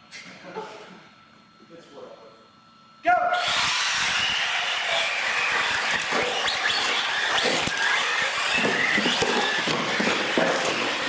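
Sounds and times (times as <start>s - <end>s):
electric motors whining: 2.6s - 11.0s.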